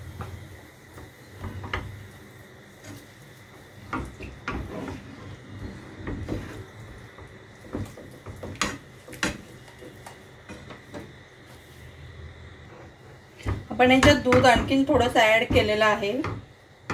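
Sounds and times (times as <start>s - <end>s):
spatula scraping sauce in pan: 4.0s - 10.2s
spatula knocking against pan: 7.1s - 11.1s, 13.4s - 16.9s.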